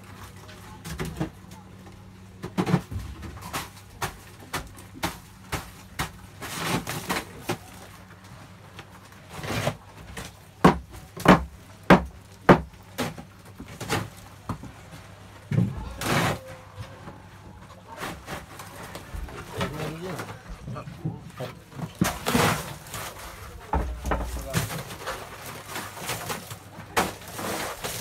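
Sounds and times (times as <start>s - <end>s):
knocks and scrapes in boat hold: 17.9s - 28.0s.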